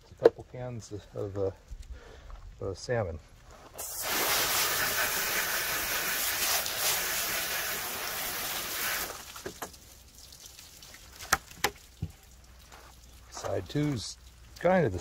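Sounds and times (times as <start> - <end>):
hose nozzle spraying water: 3.7 - 12.0.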